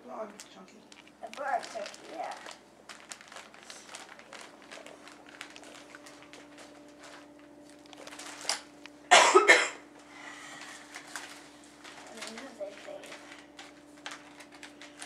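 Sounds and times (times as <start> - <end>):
wrapping crinkling and rustling: 0.2 - 8.7, 10.0 - 15.0.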